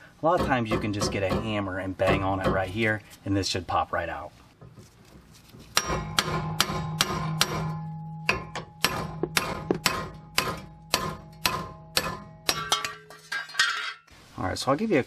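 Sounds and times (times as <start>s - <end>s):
hammer striking steel hub: 5.7s - 14.0s.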